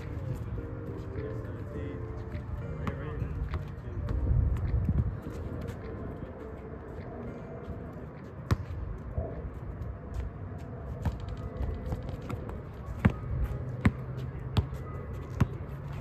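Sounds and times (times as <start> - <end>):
basketball bouncing on hard court: 8.5 - 8.8.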